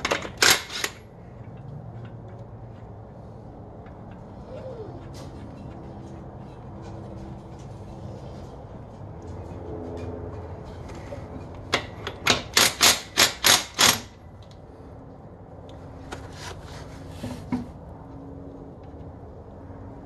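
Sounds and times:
sharp metal knocks: 11.7s - 14.2s.

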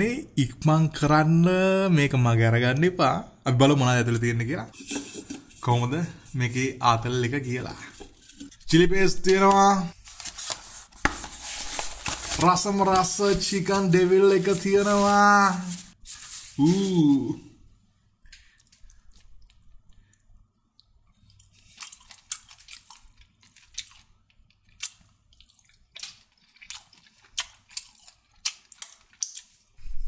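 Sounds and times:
person humming: 16.6s - 17.5s
food packaging clicks and crackles: 21.2s - 29.7s.

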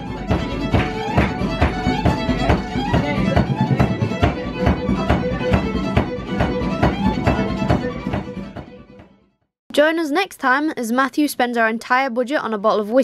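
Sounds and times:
fiddle playing a tune: 0.0s - 9.1s
steady beat: 0.0s - 9.1s.

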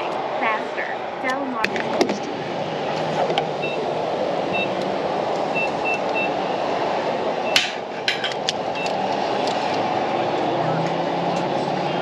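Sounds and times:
keypad beeps: 8.8s - 9.0s.

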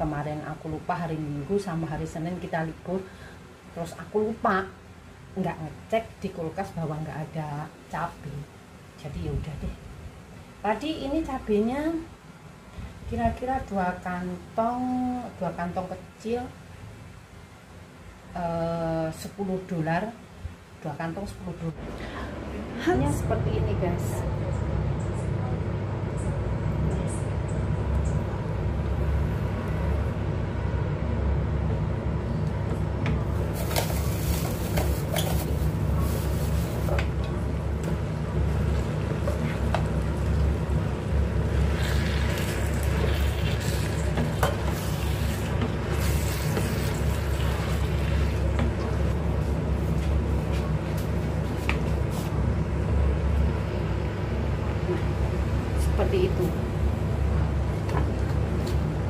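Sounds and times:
low hum: 21.7s - 34.8s.

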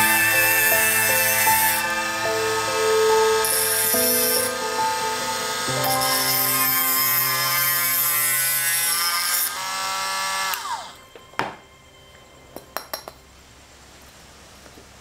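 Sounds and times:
rotary tool whine: 0.0s - 11.2s.

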